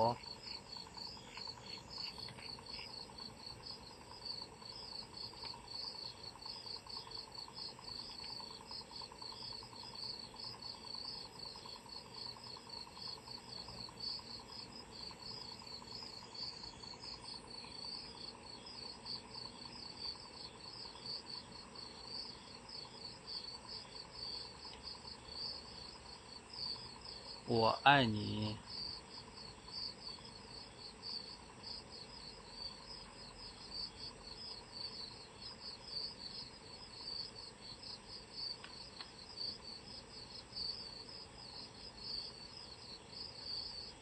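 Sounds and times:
crickets chirping: 0:00.0 - 0:44.0.

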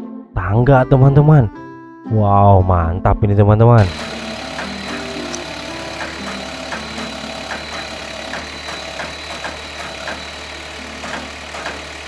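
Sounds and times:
diesel truck engine idling: 0:03.8 - 0:12.0
hydraulic whine: 0:03.8 - 0:12.0.

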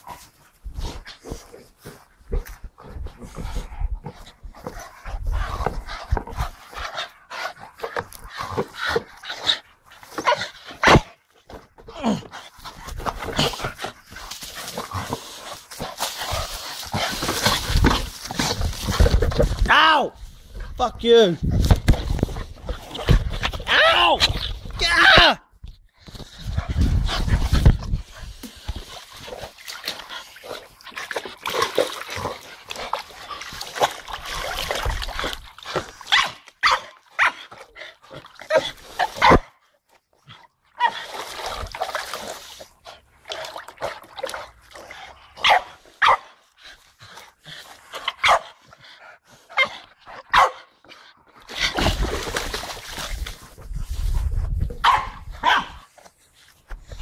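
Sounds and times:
water splashing: 0:27.4 - 0:36.0, 0:51.5 - 0:53.6
dogs barking: 0:45.4 - 0:46.3, 0:48.1 - 0:48.5, 0:50.3 - 0:50.7, 0:54.8 - 0:55.8.

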